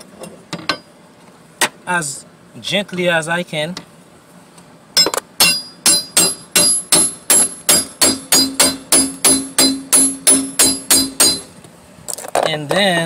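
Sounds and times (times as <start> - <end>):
hammer tapping metal tool: 5.0 - 11.5.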